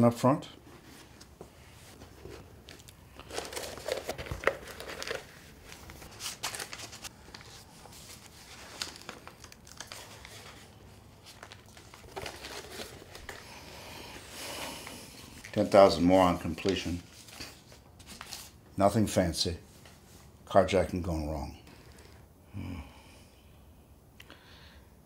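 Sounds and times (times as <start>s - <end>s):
paper rustling and crinkling: 0.6s - 18.7s.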